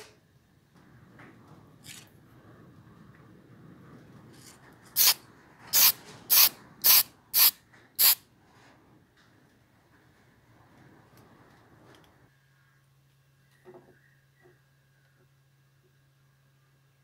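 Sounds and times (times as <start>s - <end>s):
aerosol can spraying: 5.0s - 8.2s.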